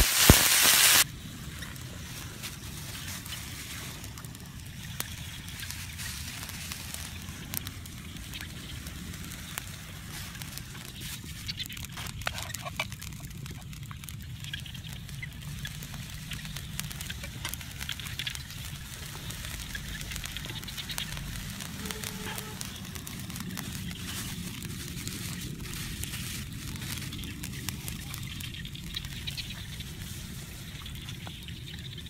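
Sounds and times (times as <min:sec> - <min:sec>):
twig fire crackling: 0:00.0 - 0:32.0
plastic bag crinkling: 0:02.5 - 0:14.3, 0:15.1 - 0:31.0.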